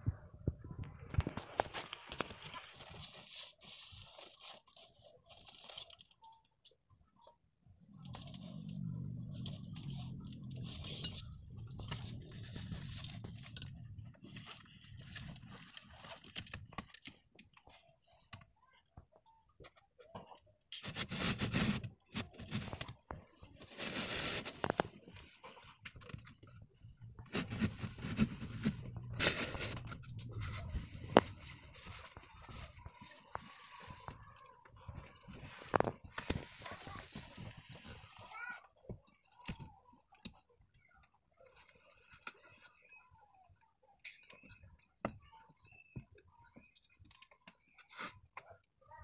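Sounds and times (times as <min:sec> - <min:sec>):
scraping and rustling close up: 0:01.0 - 0:06.8, 0:07.8 - 0:40.5
low hum: 0:26.9 - 0:32.6.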